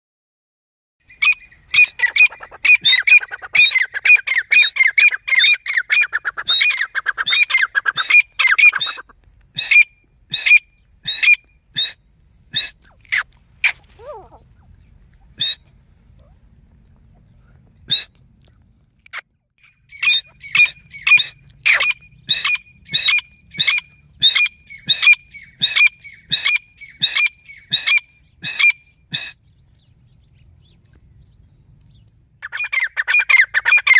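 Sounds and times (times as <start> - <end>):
francolin calling: 19.6 - 29.4.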